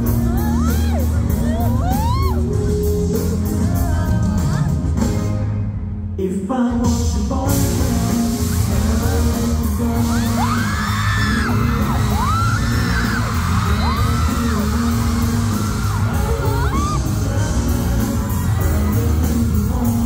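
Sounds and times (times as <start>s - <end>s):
audience screaming: 0.0s - 2.6s, 8.5s - 20.0s
live pop song with singing: 0.0s - 20.0s.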